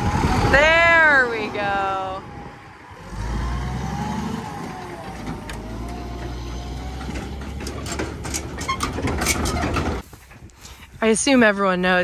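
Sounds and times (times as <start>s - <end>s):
truck engine hum: 0.0s - 10.0s
trailer rattling clanks: 2.9s - 10.1s.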